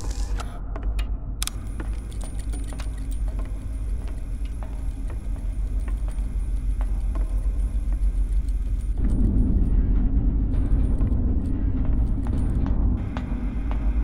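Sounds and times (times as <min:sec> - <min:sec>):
deep machine rumble: 0:00.0 - 0:14.0
small mechanical clicks and ticks: 0:01.4 - 0:09.4.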